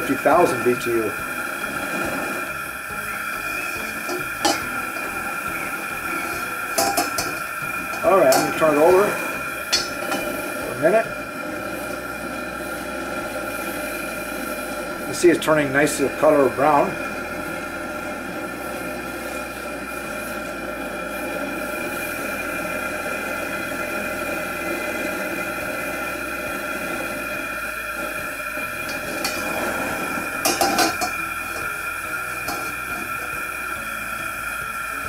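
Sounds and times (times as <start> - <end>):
gas burner roaring: 0.0 - 35.0
wok clanking on metal: 3.8 - 5.2, 6.2 - 10.4, 28.8 - 31.7, 32.4 - 33.2.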